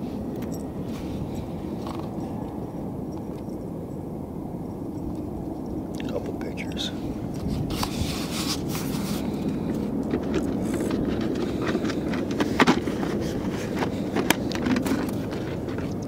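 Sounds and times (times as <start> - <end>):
distant highway traffic rumble: 0.0 - 16.0
boots shifting on gravel: 6.1 - 16.0.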